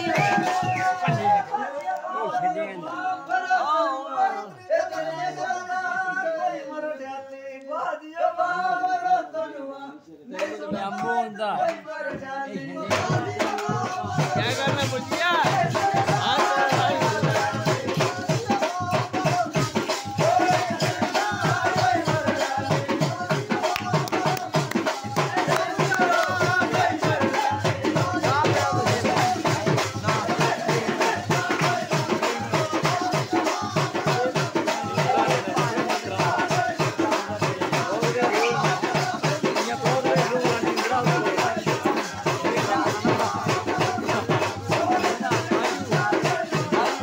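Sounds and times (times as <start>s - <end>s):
rattling percussion beat: 0.0s - 1.6s, 12.1s - 47.0s.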